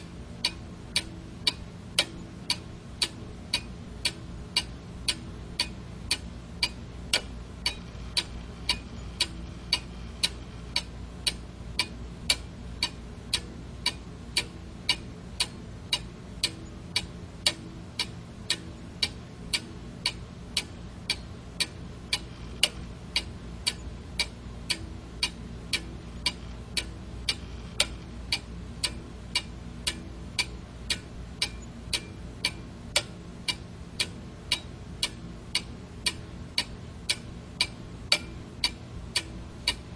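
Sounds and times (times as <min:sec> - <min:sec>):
faint low hum: 0:00.0 - 0:39.9
alarm clock ticking: 0:00.4 - 0:39.8.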